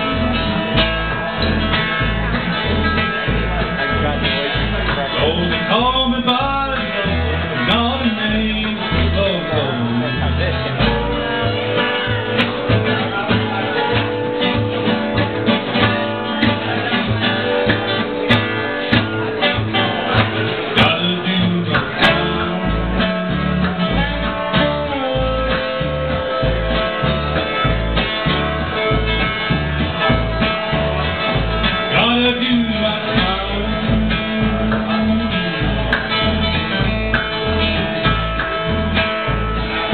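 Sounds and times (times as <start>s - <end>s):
double bass plucking: 0.0s - 39.9s
mandolin: 0.0s - 39.9s
strummed acoustic guitar: 0.0s - 39.9s.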